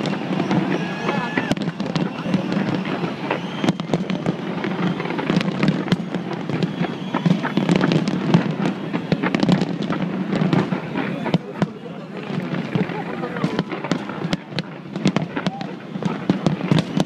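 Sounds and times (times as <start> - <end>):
fireworks crackling and banging: 0.0 - 17.0.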